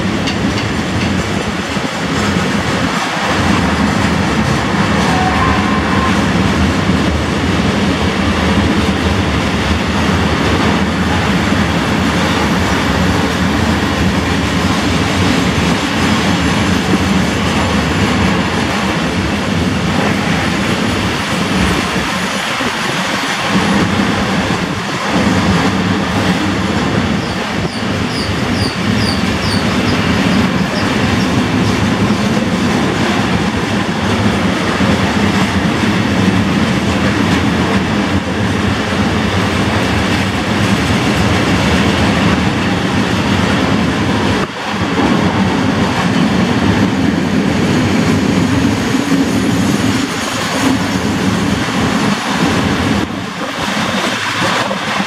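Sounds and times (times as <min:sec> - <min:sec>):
train wheels rolling on rails: 0:00.0 - 0:55.0
high wheel squeaks: 0:27.2 - 0:31.3.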